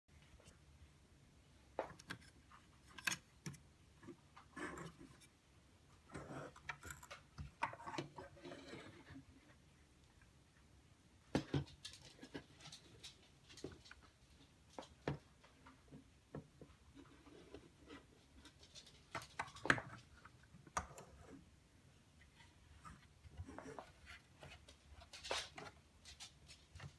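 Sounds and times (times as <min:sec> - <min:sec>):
plastic parts clicking and knocking: 0:01.8 - 0:05.3, 0:18.4 - 0:21.2.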